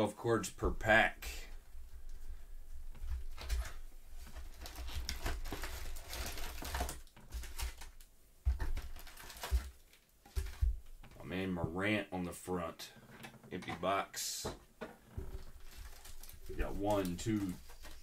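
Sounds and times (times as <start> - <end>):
packs rustling and crackling: 3.0 - 11.0, 15.1 - 18.0.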